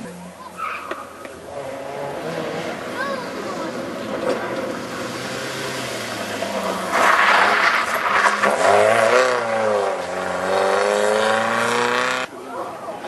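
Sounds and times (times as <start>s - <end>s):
rally car engine at full throttle: 0.0s - 13.0s
tyres on gravel: 2.1s - 12.3s.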